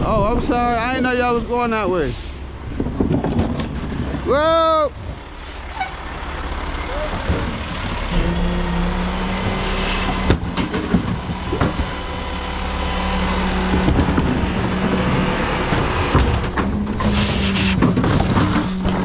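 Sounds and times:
truck engine running: 0:01.0 - 0:19.0
knocks and rattles: 0:02.7 - 0:04.3, 0:09.4 - 0:12.3, 0:13.4 - 0:19.0.

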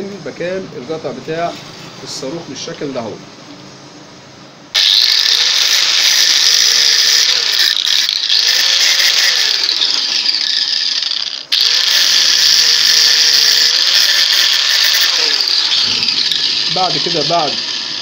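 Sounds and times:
angle grinder cutting metal: 0:04.8 - 0:18.0.

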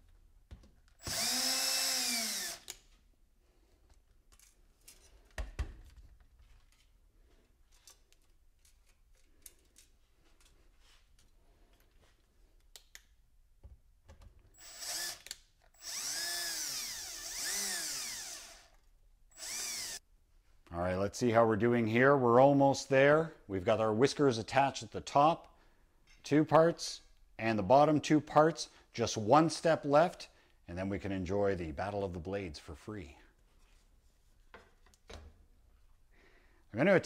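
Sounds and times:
cordless drill driving screws: 0:01.0 - 0:02.8, 0:14.6 - 0:20.0.

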